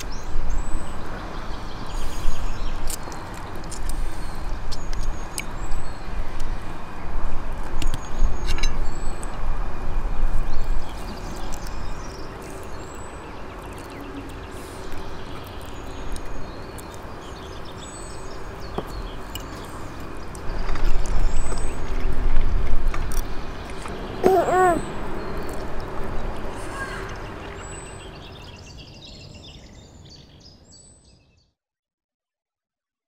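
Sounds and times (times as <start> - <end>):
small birds chirping: 0.0 - 6.7, 10.3 - 31.4
wind buffeting microphone: 5.7 - 12.5, 20.0 - 24.2.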